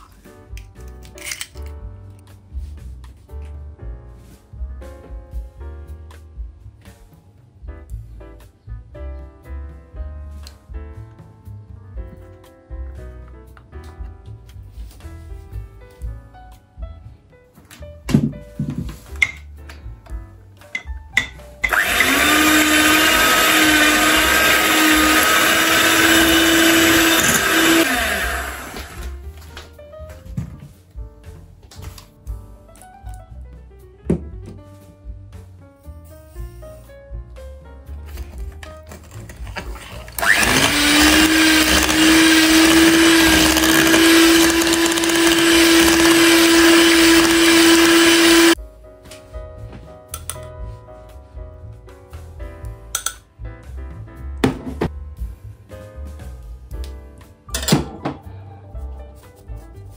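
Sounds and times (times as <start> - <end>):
electric hand mixer whisking batter: 21.6 - 29.2, 40.0 - 48.6.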